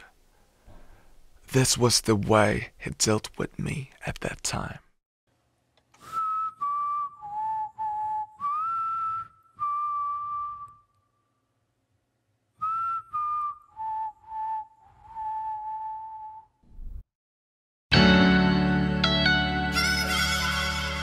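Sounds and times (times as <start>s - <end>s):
person whistling a melody: 6.0s - 11.0s, 12.6s - 16.6s.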